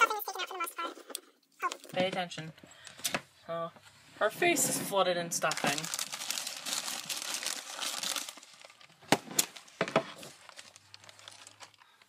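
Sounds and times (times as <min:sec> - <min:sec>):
stuffing rustling and crinkling: 0:03.8 - 0:12.0.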